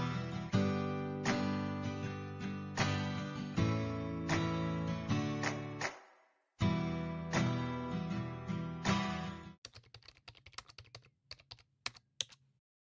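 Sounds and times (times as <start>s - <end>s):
keyboard typing clicks: 9.6s - 12.5s.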